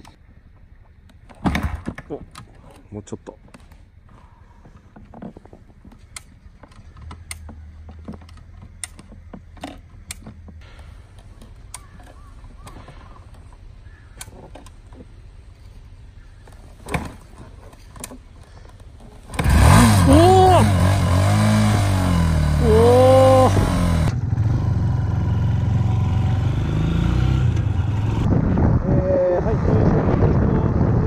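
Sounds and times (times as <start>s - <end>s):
motorcycle kick-starter knocks: 4.8s - 10.8s
motorcycle engine running: 19.3s - 28.6s.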